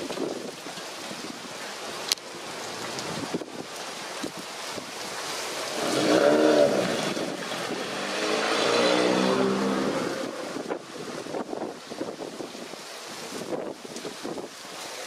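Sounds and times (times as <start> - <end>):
wind on microphone: 0.0 - 1.5, 3.0 - 5.0, 5.8 - 14.6
motor vehicles passing: 5.8 - 10.8.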